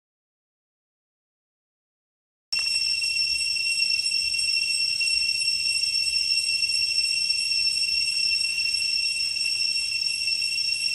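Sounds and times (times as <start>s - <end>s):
insect chorus drone: 2.6s - 10.9s.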